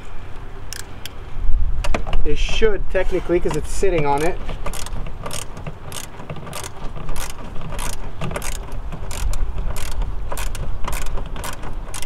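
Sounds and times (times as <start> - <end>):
ratchet wrench clicking: 0.7 - 1.2, 3.5 - 12.0.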